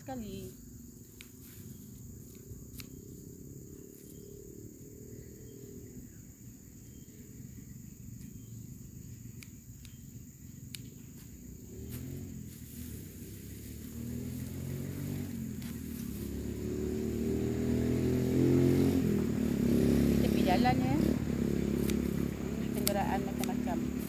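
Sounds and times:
high-pitched insect drone: 0:00.0 - 0:24.0
sharp clicks: 0:02.3 - 0:03.0, 0:21.8 - 0:23.9
low rumble: 0:19.0 - 0:24.0.

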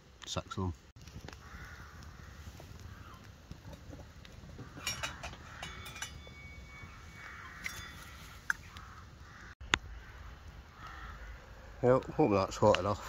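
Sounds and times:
bird calling: 0:01.4 - 0:11.5.

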